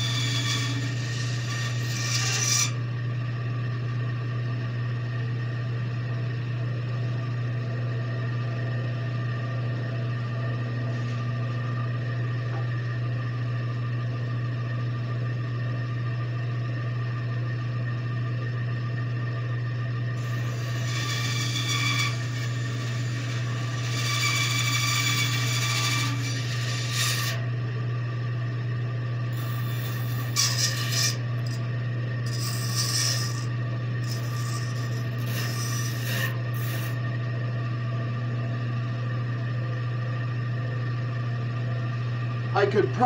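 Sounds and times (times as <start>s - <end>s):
bandsaw cutting wood: 0.0s - 2.8s, 20.2s - 27.4s, 29.4s - 31.6s, 32.3s - 37.0s.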